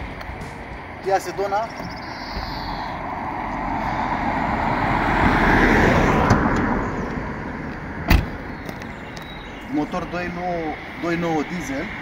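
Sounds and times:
road vehicle passing by: 0:00.0 - 0:12.0.

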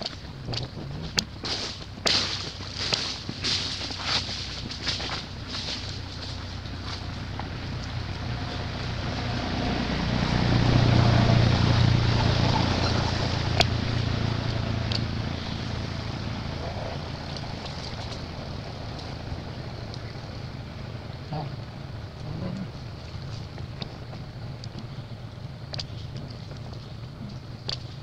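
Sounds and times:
outdoor wind noise: 0:00.0 - 0:28.0
vehicle engine hum passing: 0:00.0 - 0:28.0.

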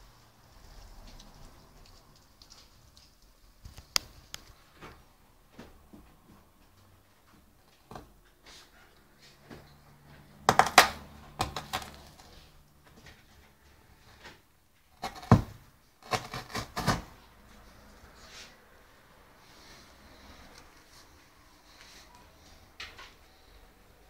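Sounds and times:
dog chewing and tearing cardboard: 0:10.4 - 0:12.5, 0:14.9 - 0:17.4.

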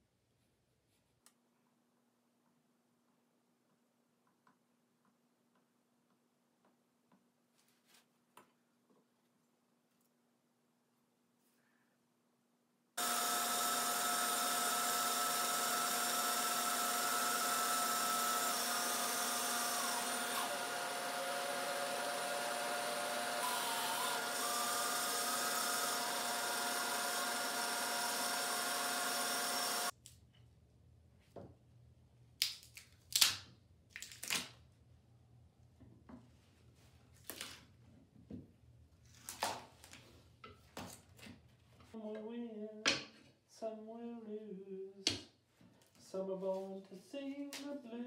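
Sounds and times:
bandsaw cutting wood: 0:13.0 - 0:29.9.

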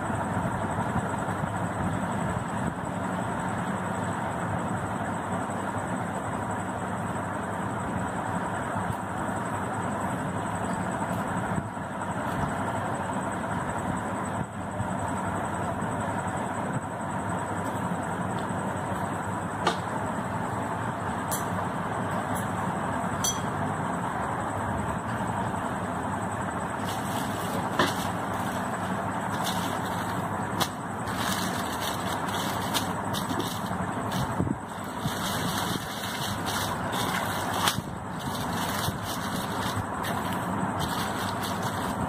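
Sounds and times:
steady background rumble: 0:00.0 - 0:42.0
plastic sheet crinkling: 0:26.8 - 0:42.0.

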